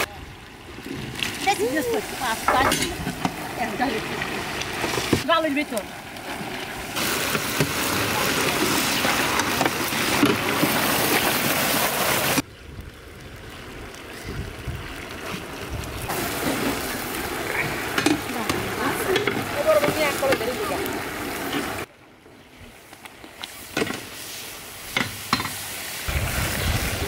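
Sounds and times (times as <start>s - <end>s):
food sizzling on tray: 1.6s - 4.0s, 7.0s - 11.7s
ladle knocking and scraping: 2.4s - 3.4s.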